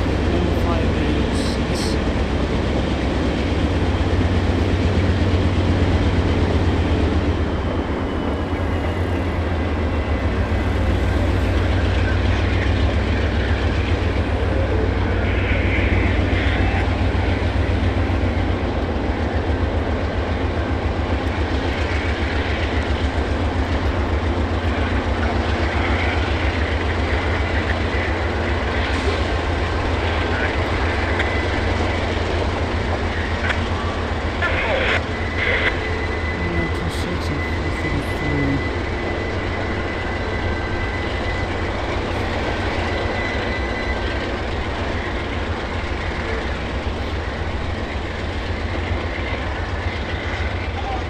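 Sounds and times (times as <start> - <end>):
train rumbling on rails: 0.0 - 51.0.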